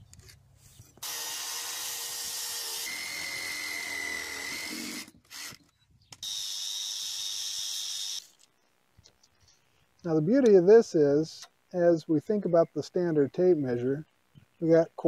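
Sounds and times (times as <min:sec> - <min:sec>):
angle grinder whining: 0:01.0 - 0:05.6
saw cutting through wood: 0:01.0 - 0:05.6.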